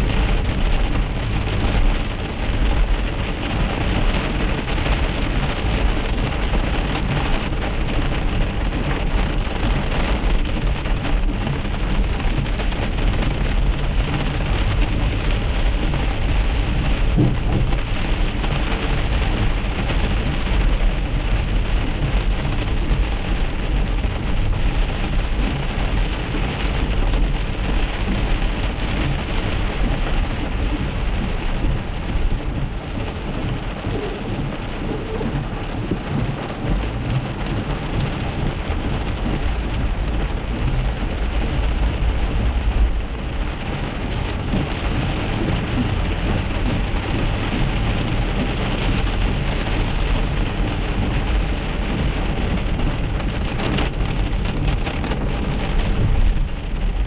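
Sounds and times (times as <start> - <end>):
car rumbling on wet road: 0.0 - 57.0
rain and hail on car roof: 0.0 - 57.0.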